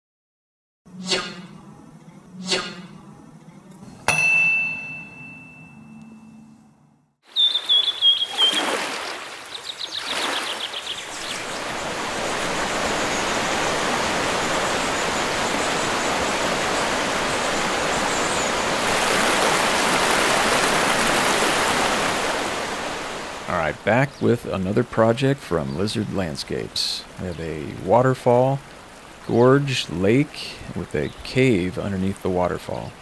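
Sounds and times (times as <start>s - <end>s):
bird chirps and trills: 7.3s - 13.9s
rushing water: 7.3s - 33.0s.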